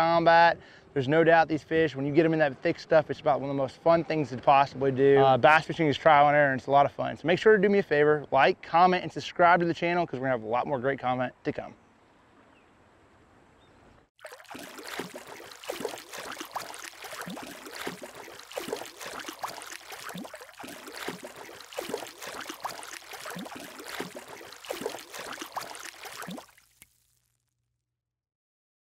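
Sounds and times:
water sloshing and lapping: 0:14.2 - 0:27.0.

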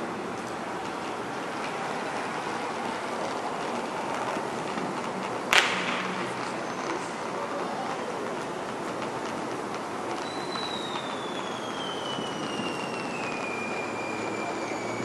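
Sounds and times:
city traffic: 0:00.0 - 0:15.0.

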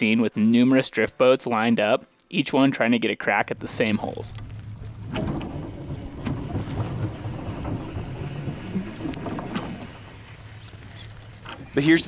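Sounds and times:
boat hull rumbling: 0:03.5 - 0:12.0.

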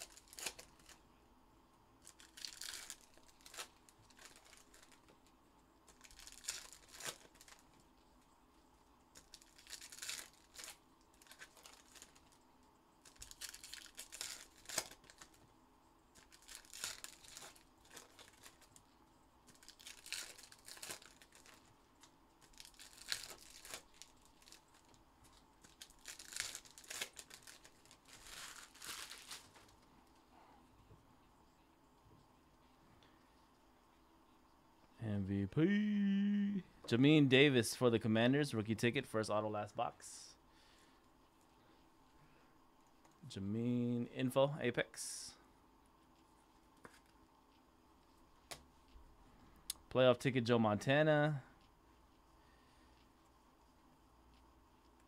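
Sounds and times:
foil packs tearing and crinkling: 0:00.0 - 0:01.0, 0:02.0 - 0:05.1, 0:05.9 - 0:07.6, 0:09.2 - 0:12.4, 0:13.0 - 0:15.4, 0:16.2 - 0:18.8, 0:19.5 - 0:21.7, 0:22.4 - 0:25.0, 0:25.6 - 0:29.7.

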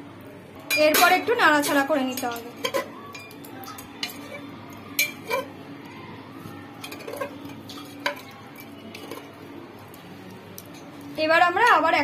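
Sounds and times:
spoon clinking against pot: 0:00.7 - 0:05.5, 0:06.8 - 0:09.4
spoon stirring food in pot: 0:00.8 - 0:05.9, 0:06.8 - 0:11.2.

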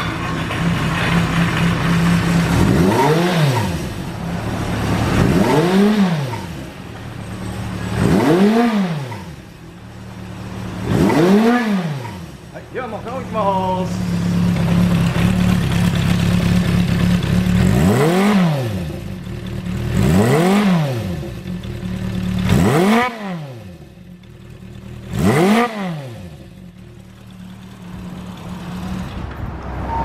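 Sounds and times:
motorcycle engine idling: 0:00.0 - 0:05.0, 0:09.3 - 0:11.0, 0:12.2 - 0:18.0, 0:18.7 - 0:20.1, 0:21.1 - 0:23.0, 0:23.6 - 0:25.2, 0:26.2 - 0:29.0.

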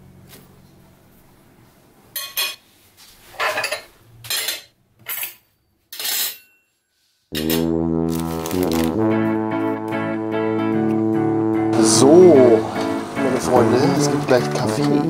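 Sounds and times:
background guitar music: 0:07.3 - 0:15.0.

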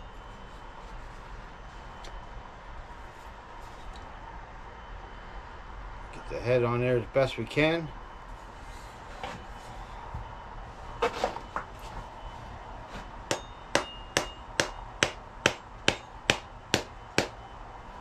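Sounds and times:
hammer striking axe handle: 0:13.3 - 0:17.4.

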